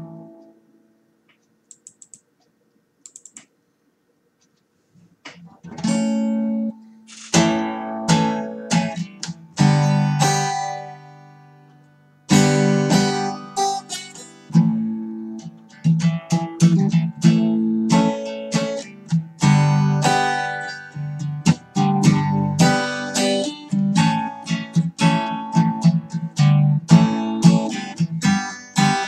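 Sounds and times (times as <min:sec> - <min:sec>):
acoustic guitar chords: 0:00.0 - 0:01.0, 0:05.3 - 0:29.0
light ticks: 0:01.3 - 0:03.5.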